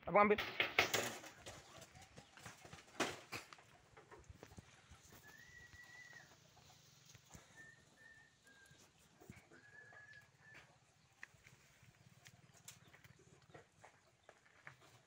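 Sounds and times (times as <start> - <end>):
high whistled bird notes: 5.1 - 6.3, 7.5 - 8.9.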